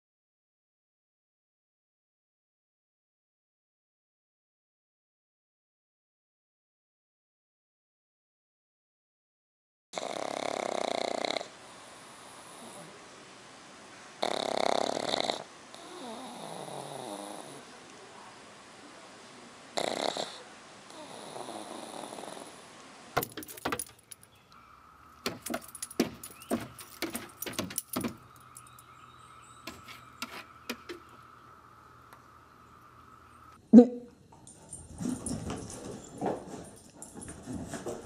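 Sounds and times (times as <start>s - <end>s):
dog snoring: 10.0s - 13.0s, 14.2s - 17.7s, 19.8s - 22.6s
dog claws scrabbling on wood: 23.2s - 24.3s, 25.2s - 28.8s, 29.6s - 31.1s.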